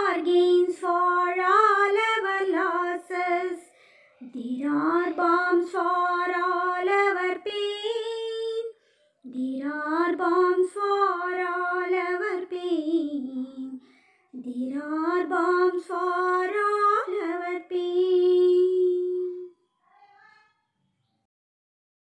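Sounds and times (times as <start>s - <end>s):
person singing unaccompanied: 0.0s - 19.6s.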